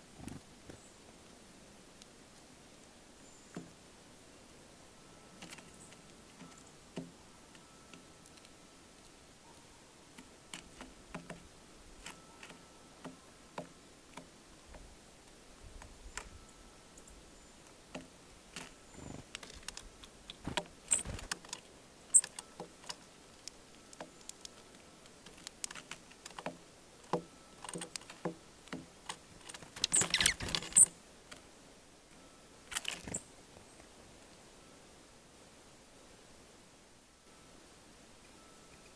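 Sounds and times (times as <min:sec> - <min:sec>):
birds pecking at seed: 0:05.3 - 0:16.3, 0:17.5 - 0:31.5, 0:32.6 - 0:33.9.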